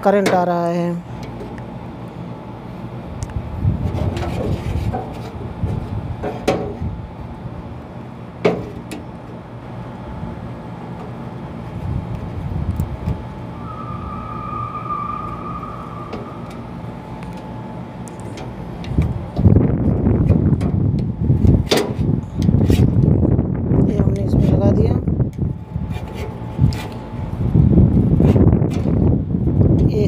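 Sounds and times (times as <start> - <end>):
steady low rumble: 0.9 - 30.0
steady high tone: 13.3 - 18.7.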